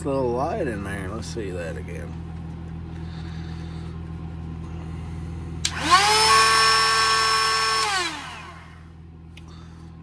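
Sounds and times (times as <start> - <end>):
router motor whine: 5.6 - 8.9.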